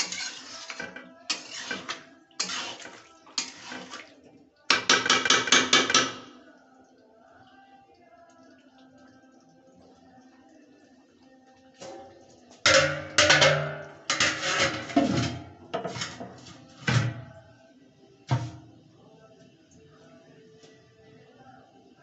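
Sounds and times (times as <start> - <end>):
faint background music: 0.0 - 22.0
steel lid clanking on pot rim: 12.7 - 16.4.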